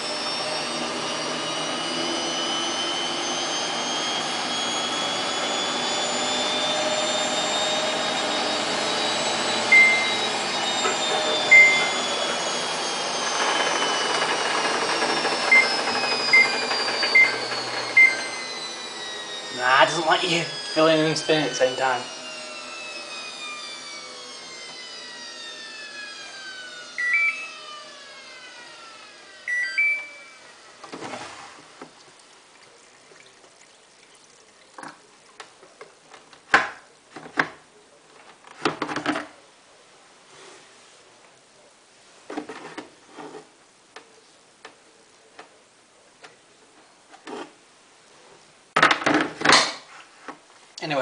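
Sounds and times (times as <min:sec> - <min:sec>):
washing machine motor whine winding down: 0:00.0 - 0:34.1
control panel beeps: 0:09.7 - 0:10.2, 0:11.5 - 0:12.0, 0:15.5 - 0:18.3, 0:27.0 - 0:27.4, 0:29.5 - 0:30.4.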